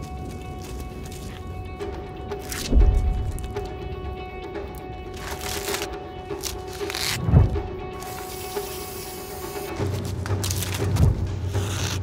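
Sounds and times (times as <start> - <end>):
background music: 0.0 - 12.0
aerosol spray can hissing: 8.0 - 9.8.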